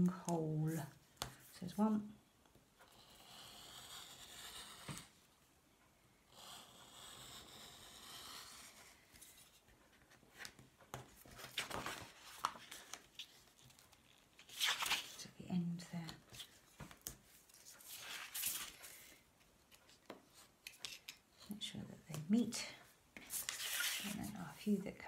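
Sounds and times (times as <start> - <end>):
paper rustling: 9.2 - 15.2, 23.2 - 24.4.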